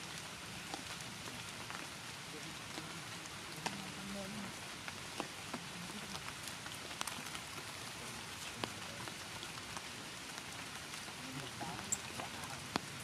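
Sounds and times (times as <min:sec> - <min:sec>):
steady rain falling: 0:00.0 - 0:13.0
single raindrops hitting: 0:02.6 - 0:13.0.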